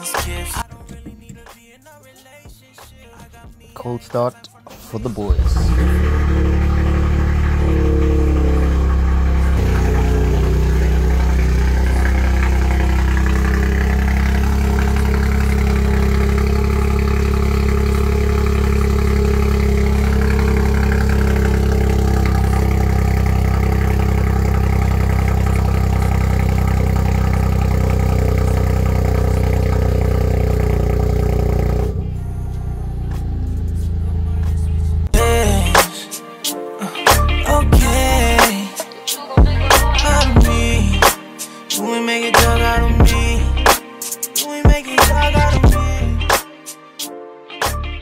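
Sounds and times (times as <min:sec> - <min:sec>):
car engine idling: 0:05.2 - 0:35.8.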